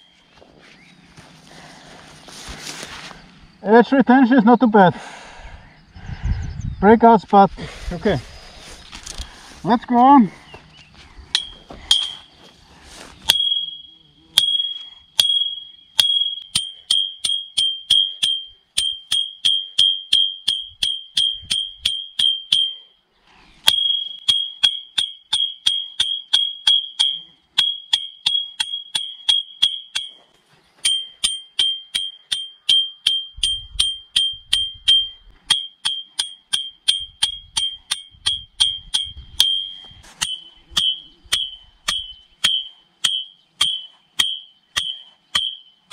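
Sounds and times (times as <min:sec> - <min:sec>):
metal rod ringing: 0:11.3 - 0:12.3, 0:13.2 - 0:22.9, 0:23.6 - 0:30.2, 0:30.8 - 0:45.9.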